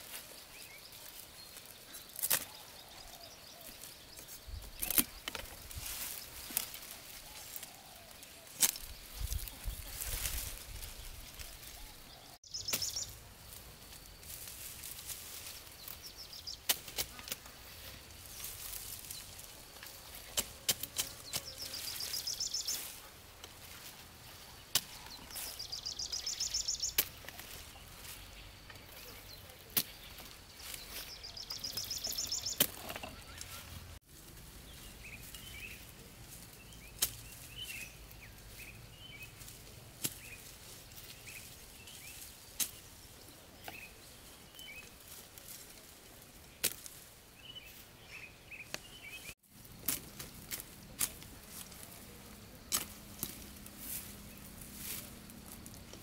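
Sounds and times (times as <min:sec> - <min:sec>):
birds chirping faintly: 0:00.0 - 0:34.0
sickle rasping through stalks: 0:00.0 - 0:47.9, 0:48.6 - 0:56.0
stalks rustling: 0:00.0 - 0:48.0, 0:48.6 - 0:56.0
stalks snapping: 0:02.1 - 0:02.6, 0:04.7 - 0:05.6, 0:08.5 - 0:08.9, 0:19.8 - 0:21.6, 0:26.9 - 0:27.6, 0:29.7 - 0:30.2, 0:49.8 - 0:51.8, 0:52.6 - 0:53.5.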